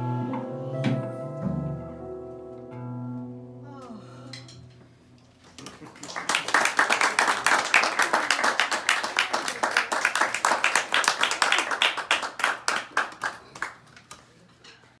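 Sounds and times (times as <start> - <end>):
small audience applause: 5.4 - 14.2.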